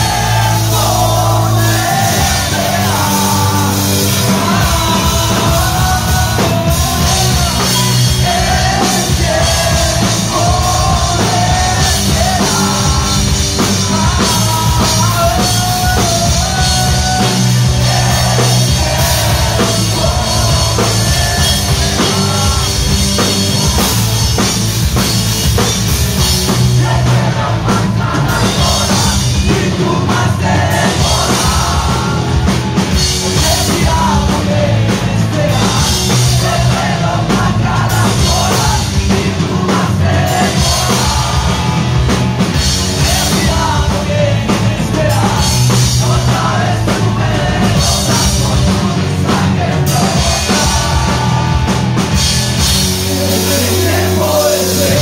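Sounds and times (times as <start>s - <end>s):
bass guitar: 0.0s - 55.0s
drum kit: 0.0s - 55.0s
electric guitar: 0.0s - 55.0s
man singing lead vocals: 0.0s - 55.0s.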